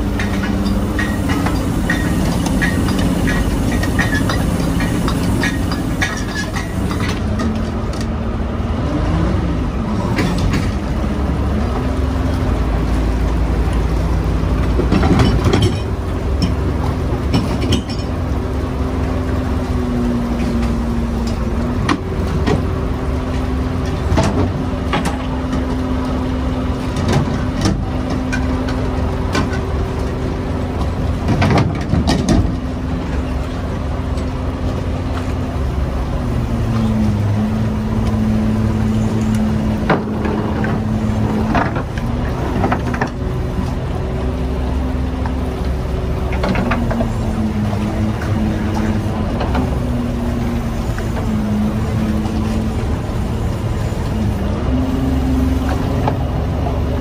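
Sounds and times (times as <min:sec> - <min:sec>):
boat engine droning: 0:00.0 - 0:57.0
sharp knocks and clatter: 0:00.1 - 0:08.1, 0:17.2 - 0:18.2.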